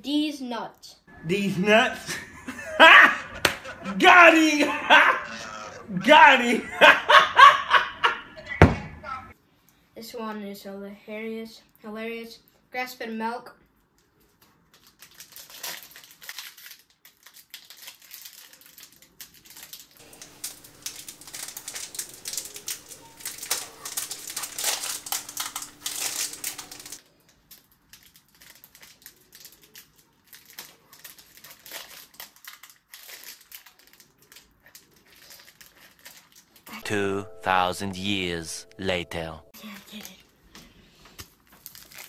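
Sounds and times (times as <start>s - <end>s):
wrapper crinkling: 14.7s - 37.7s, 41.2s - 42.0s.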